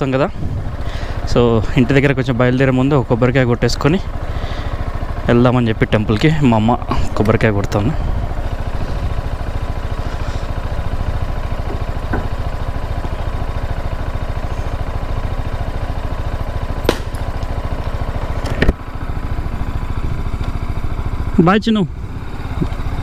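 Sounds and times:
motorcycle engine idling: 0.0s - 23.0s
coconut cracking on road: 16.8s - 17.6s.

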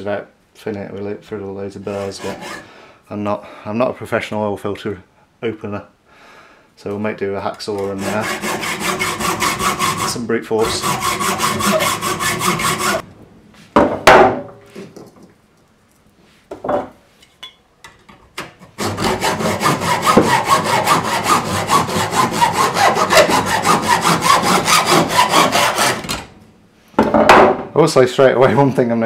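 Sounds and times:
hacksaw cutting metal: 1.9s - 2.6s, 7.8s - 13.0s, 18.6s - 26.3s.

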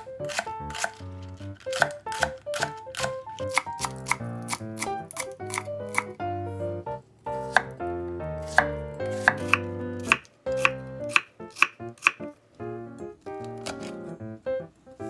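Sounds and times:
knife chopping on wooden board: 0.0s - 1.0s, 1.6s - 6.2s, 7.4s - 7.8s, 8.4s - 12.2s, 13.5s - 14.0s.

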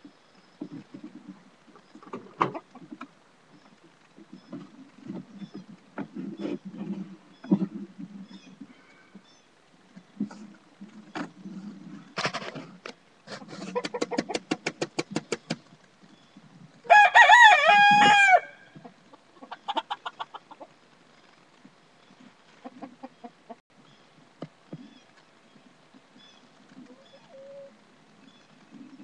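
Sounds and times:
chicken clucking: 13.3s - 15.5s, 18.8s - 20.7s, 22.6s - 23.6s
rooster crowing: 16.9s - 18.7s.

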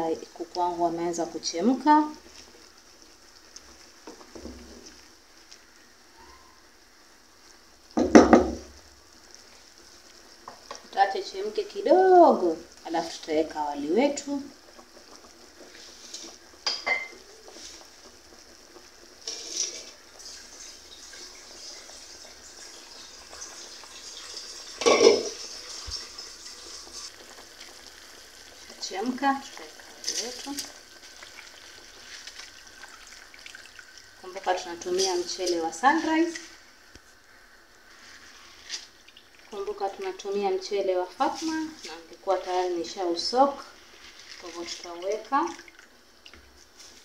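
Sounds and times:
water bubbling in pot: 0.0s - 47.0s
spoon knocking and scraping pot: 16.1s - 17.2s, 24.8s - 26.0s.

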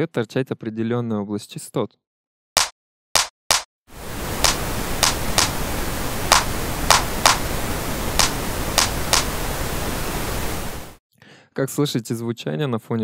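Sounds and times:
drum machine clap: 2.6s - 3.7s, 4.4s - 5.6s, 6.3s - 7.5s, 8.2s - 9.3s
steady pink noise: 3.9s - 11.0s.

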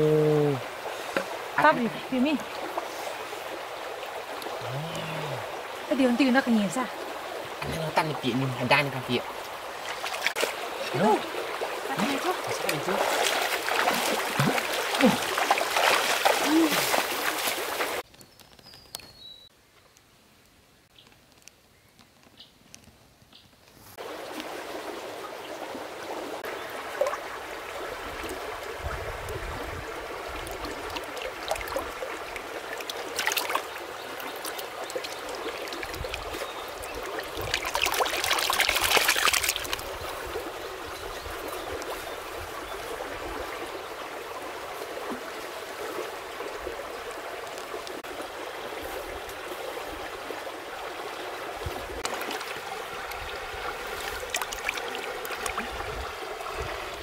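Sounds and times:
stream water trickling: 0.0s - 19.0s, 24.0s - 57.0s
water splashing and sloshing: 0.5s - 18.1s, 23.9s - 57.0s.

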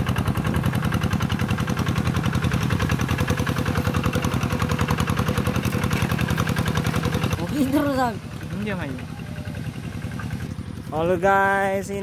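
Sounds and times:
diesel engine chugging: 0.0s - 12.0s.

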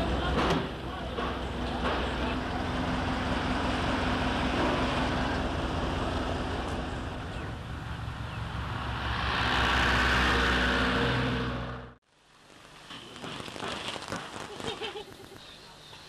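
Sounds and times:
road noise rushing: 0.0s - 12.0s.

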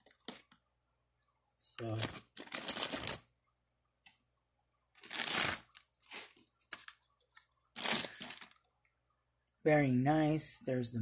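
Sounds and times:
packaging rustling and crinkling: 0.0s - 0.6s, 1.8s - 3.3s, 5.0s - 8.7s.

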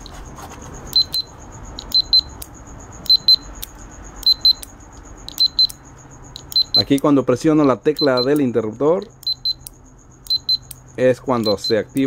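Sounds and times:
short high-pitched buzzer beeps: 0.9s - 2.4s, 4.2s - 4.7s, 5.3s - 6.9s, 8.0s - 8.4s, 9.2s - 9.7s, 10.3s - 10.7s, 11.4s - 11.9s.

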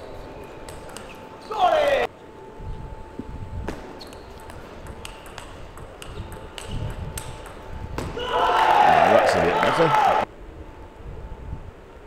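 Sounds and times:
table tennis ball hits: 3.7s - 8.2s
people shouting: 8.1s - 10.3s.

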